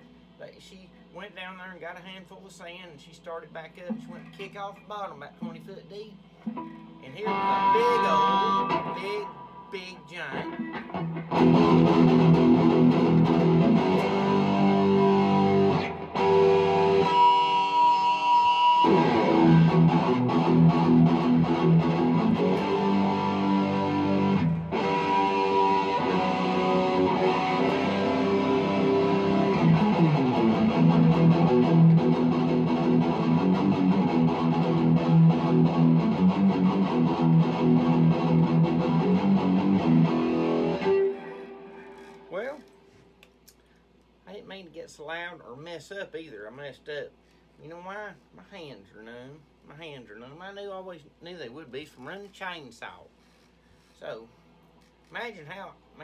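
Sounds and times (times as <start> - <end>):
electric guitar playing: 3.8 - 42.5.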